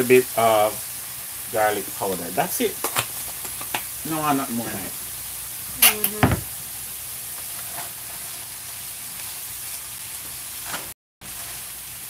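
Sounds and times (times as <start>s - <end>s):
vegetables sizzling in oil: 0.0s - 12.0s
knock: 6.2s - 6.5s.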